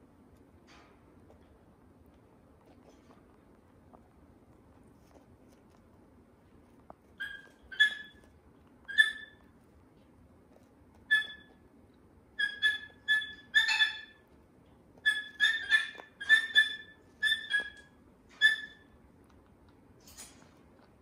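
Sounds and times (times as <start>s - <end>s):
cockatoo chirping whistles: 12.4s - 14.2s, 15.0s - 17.8s.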